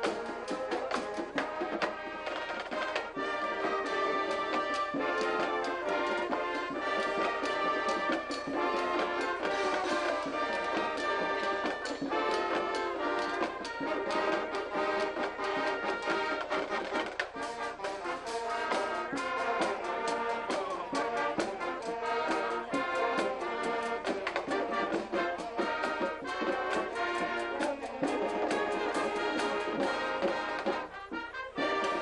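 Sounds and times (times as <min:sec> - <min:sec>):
drum hits: 0:00.0 - 0:30.9
marching band brass and saxophones: 0:00.0 - 0:32.0.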